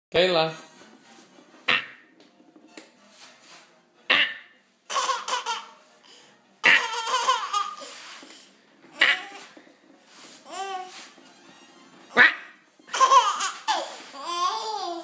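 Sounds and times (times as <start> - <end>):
baby laughing: 4.2 - 5.8, 6.6 - 8.0, 8.9 - 9.5, 12.1 - 15.0.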